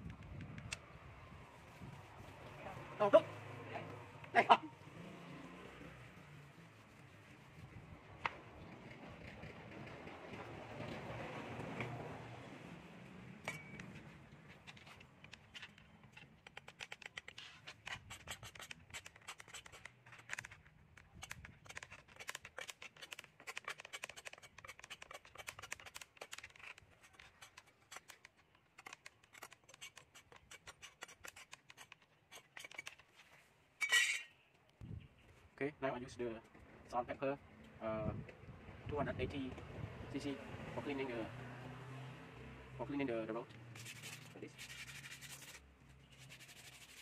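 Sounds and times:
scraping bamboo pole: 14.5s - 34.3s, 43.7s - 47.0s.

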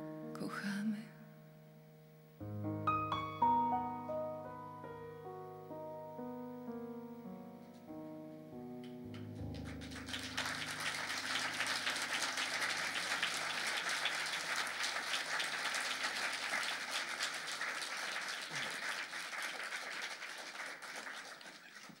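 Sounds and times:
keyboard chord: 1.3s - 13.8s
audience applauding: 9.1s - 22.0s.

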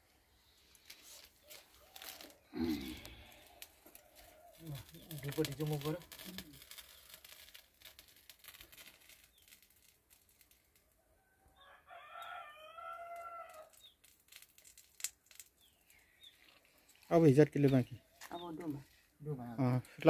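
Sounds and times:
faint rooster crowing: 11.0s - 13.8s.

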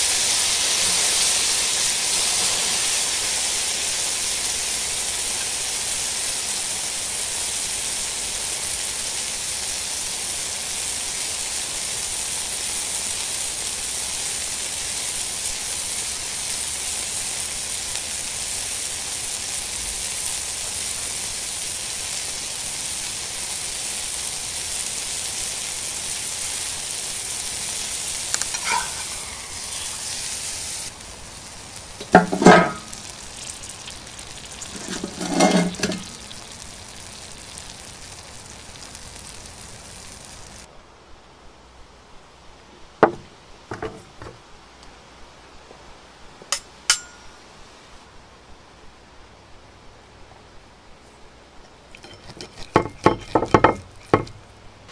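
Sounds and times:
steak sizzling in pan: 0.0s - 40.7s, 51.9s - 54.5s.

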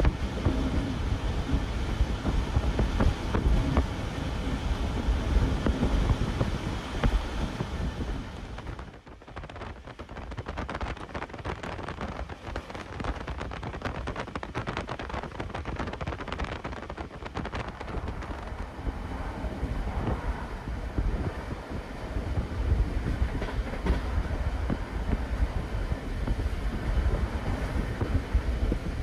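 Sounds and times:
train wheels rumbling on rail: 0.0s - 29.0s
wind: 0.0s - 29.0s
rail clicks and rattles: 19.9s - 29.0s.

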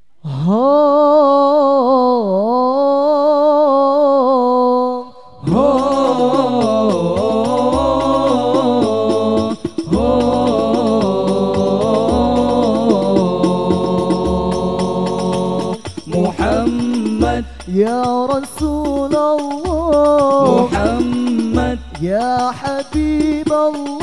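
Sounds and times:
man singing unaccompanied: 0.4s - 24.0s
group of men singing: 5.4s - 24.0s
steady drum beat: 5.5s - 24.0s.

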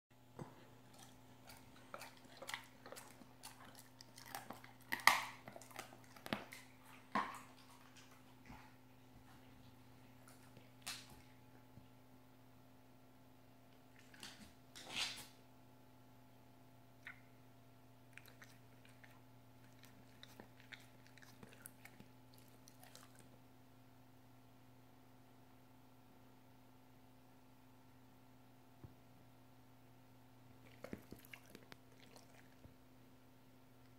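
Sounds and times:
low steady hum: 0.2s - 33.9s
dog chewing on a bone: 0.4s - 8.7s, 18.1s - 23.4s, 30.6s - 32.6s.

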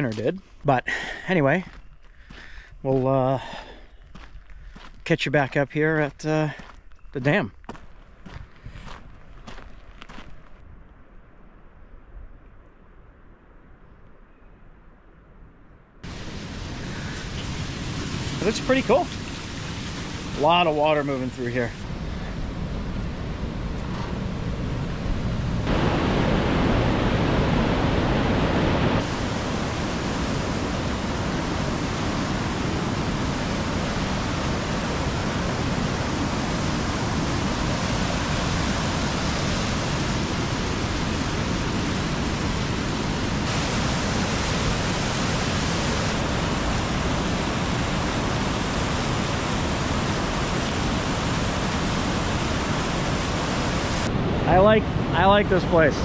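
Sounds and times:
whitewater rushing through spillway: 16.1s - 21.8s, 25.6s - 56.0s.

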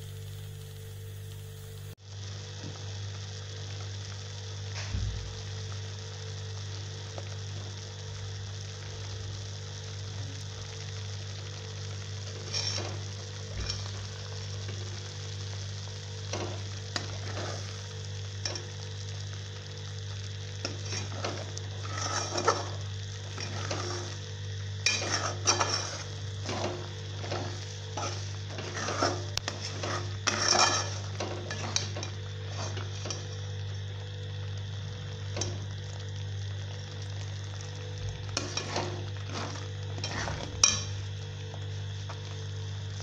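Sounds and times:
faint sizzle: 0.0s - 43.0s
low steady hum: 0.0s - 43.0s
spatula scraping steel pot: 12.4s - 14.0s, 16.3s - 17.8s, 20.6s - 24.2s, 24.8s - 33.4s, 38.3s - 41.0s.

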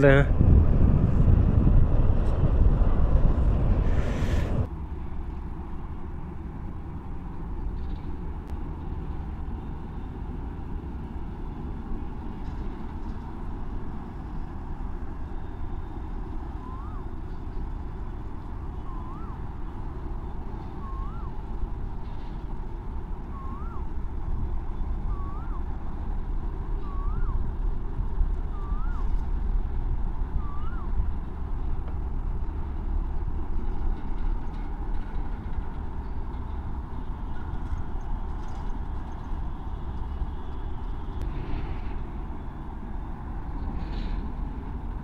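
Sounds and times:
engine rumbling: 0.0s - 45.0s.

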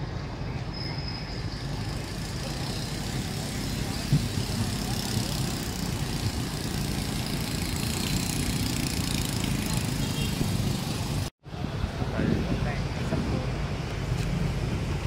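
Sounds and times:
traffic engine rumble: 0.0s - 15.0s.

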